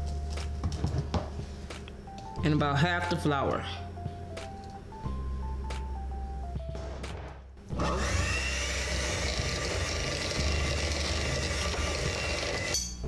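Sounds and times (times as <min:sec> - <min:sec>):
electric hand mixer whining: 0:07.7 - 0:12.9
beaters churning batter: 0:07.8 - 0:12.8.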